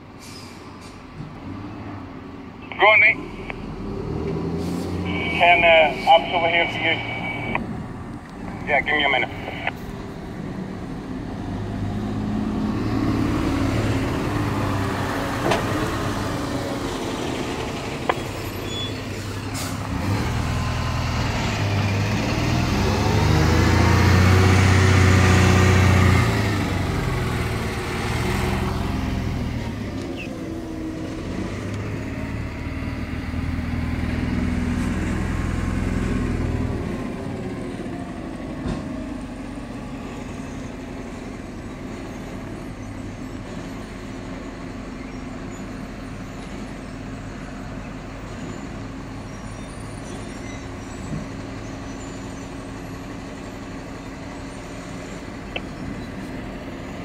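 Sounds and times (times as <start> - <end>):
diesel engine revving: 1.0 - 57.0.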